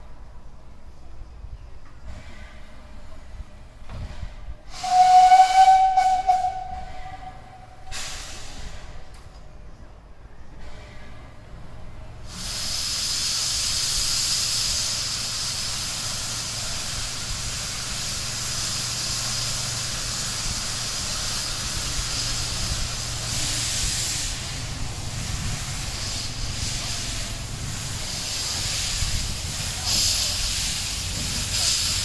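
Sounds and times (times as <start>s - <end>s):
locomotive venting steam: 1.2s - 32.0s.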